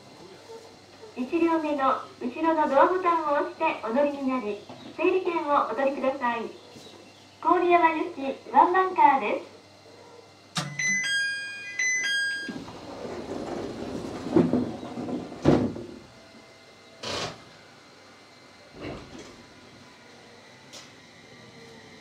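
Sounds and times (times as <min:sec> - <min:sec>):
electronic door chime: 0:10.6 - 0:12.6
sliding doors closing with thuds: 0:11.8 - 0:16.3, 0:17.0 - 0:17.6, 0:18.7 - 0:19.6.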